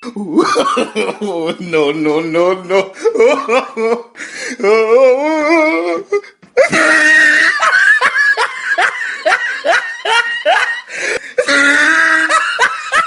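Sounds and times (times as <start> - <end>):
high-pitched laughter: 6.6 - 13.0.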